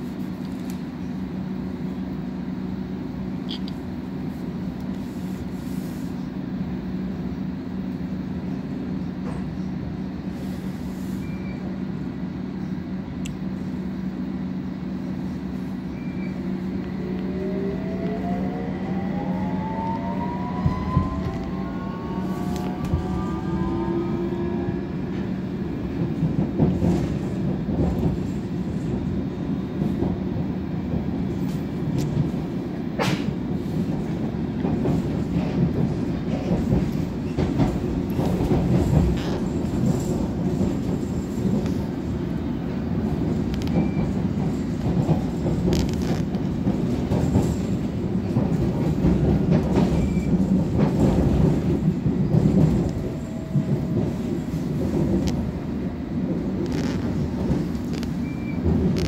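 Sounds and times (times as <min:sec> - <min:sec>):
train rumbling along track: 0:00.0 - 0:59.0
train motor whine: 0:15.6 - 0:25.8.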